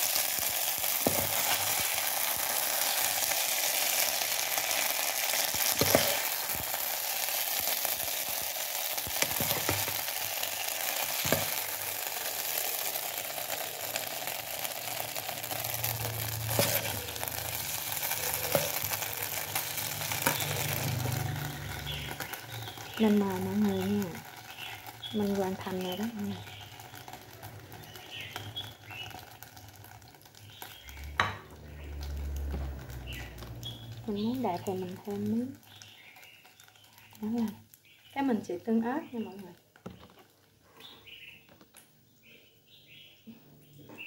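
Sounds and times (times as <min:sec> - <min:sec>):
food sizzling in a pan: 0:00.0 - 0:41.5
spatula scraping and knocking pan: 0:00.4 - 0:03.5, 0:05.2 - 0:08.4, 0:09.0 - 0:10.2, 0:10.8 - 0:11.8, 0:15.4 - 0:23.0.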